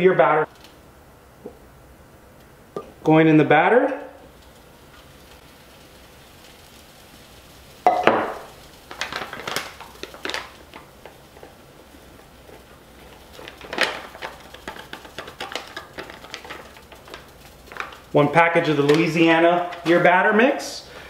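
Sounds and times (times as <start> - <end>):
paper packet crinkling: 4.3 - 20.1
powder shaken into plastic tub: 13.1 - 20.3.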